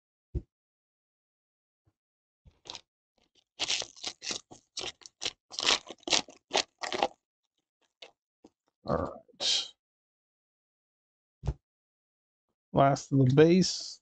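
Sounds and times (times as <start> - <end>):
wrapper crinkling and tearing: 2.6 - 2.8, 3.6 - 7.2.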